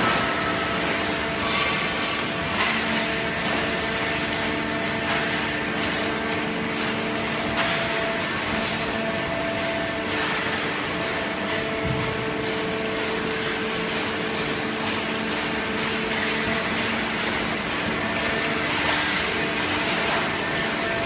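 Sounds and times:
hydraulic pump and motor hum: 0:00.0 - 0:21.0.

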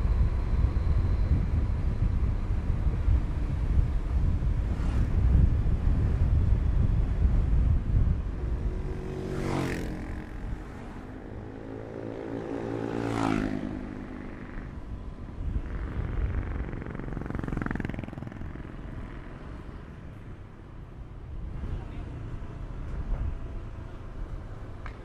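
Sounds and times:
vehicles passing by: 0:00.0 - 0:25.0
wind noise: 0:00.0 - 0:25.0
motor scooter engine running: 0:13.1 - 0:19.3.

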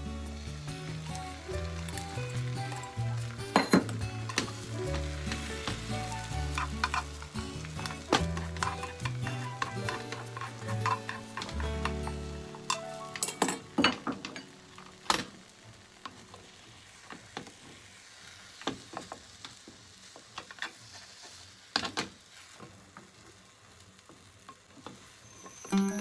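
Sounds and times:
egg sizzling in a pan: 0:00.0 - 0:26.0
chopsticks tapping and scraping pan: 0:01.2 - 0:14.5
spatula scraping a pan: 0:04.2 - 0:12.2, 0:20.7 - 0:21.6.

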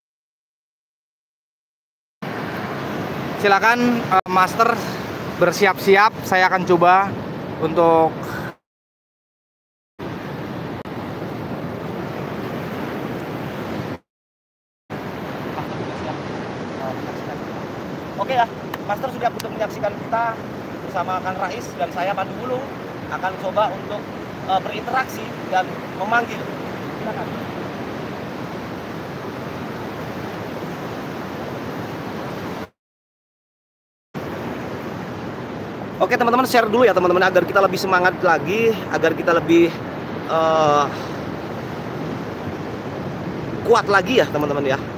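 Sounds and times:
ocean surf rushing: 0:02.2 - 0:08.6, 0:10.0 - 0:14.0, 0:14.9 - 0:32.8, 0:34.2 - 0:44.9.

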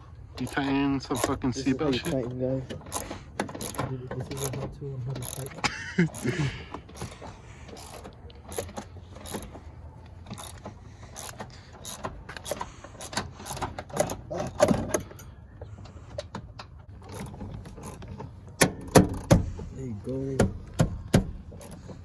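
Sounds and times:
metal seatbelt hardware clicking: 0:00.4 - 0:09.6, 0:16.1 - 0:19.6, 0:20.4 - 0:22.0.

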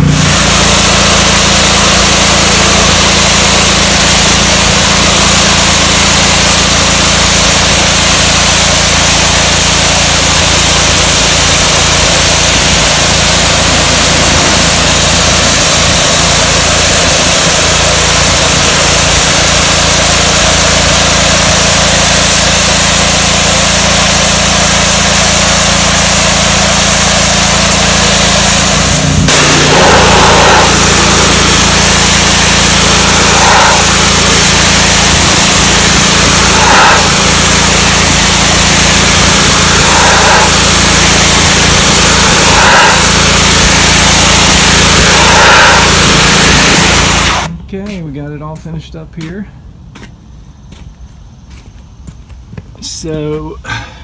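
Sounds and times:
high-pressure water jet hissing: 0:00.0 - 0:47.5
pressure washer engine running: 0:00.0 - 0:47.9.

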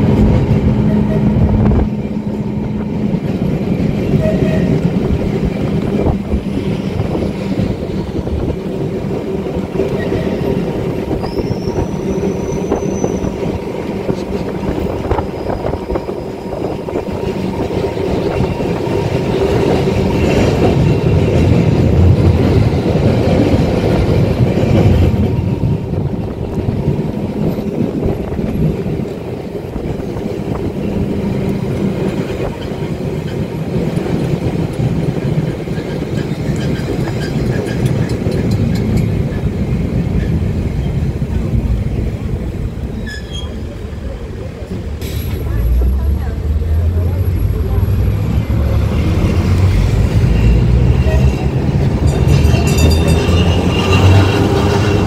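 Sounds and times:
tram wheels rumbling on rails: 0:00.0 - 0:55.0
high wheel squeal: 0:09.9 - 0:13.4, 0:42.9 - 0:43.8, 0:50.1 - 0:55.0.

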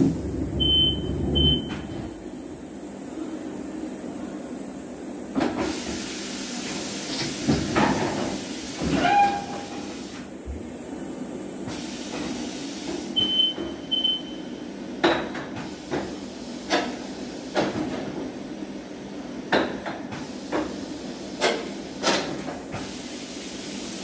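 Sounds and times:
machine running noise: 0:00.0 - 0:02.7.

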